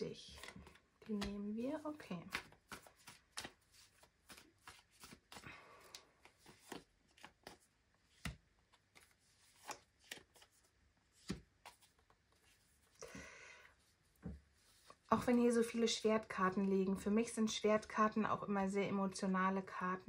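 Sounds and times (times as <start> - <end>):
cards being shuffled: 0.2 - 13.0.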